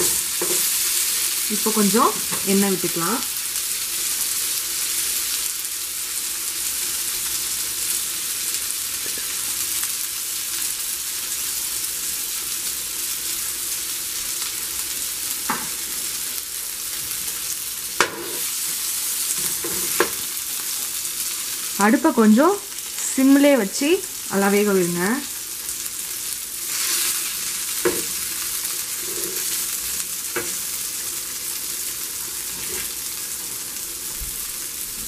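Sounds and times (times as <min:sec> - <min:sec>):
fish sizzling in oil: 0:00.0 - 0:35.0
spatula knocking on griddle: 0:18.0 - 0:18.4.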